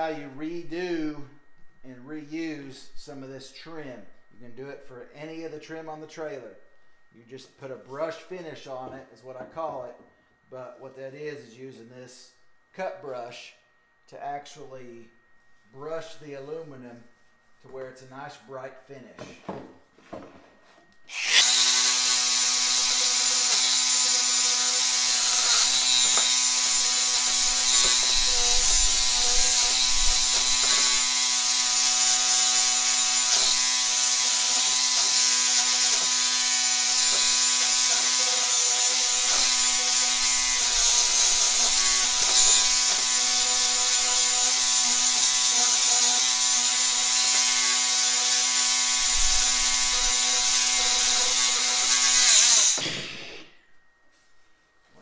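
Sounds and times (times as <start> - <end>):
grinder motor whine: 20.8 - 54.0.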